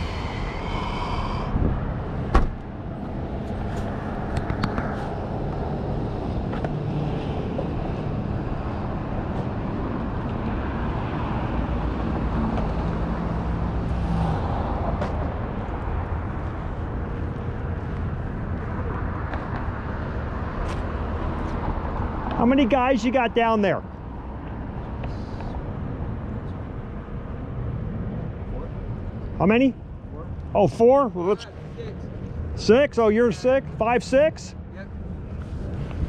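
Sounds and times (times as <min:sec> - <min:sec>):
road traffic noise: 0:00.0 - 0:36.0
car hatch slamming shut: 0:02.3 - 0:02.6.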